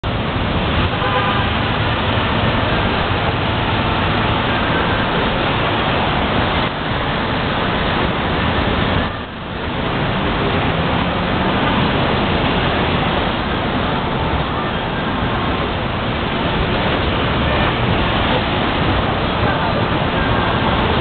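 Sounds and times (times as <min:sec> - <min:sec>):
cars driving past: 0:00.0 - 0:21.0.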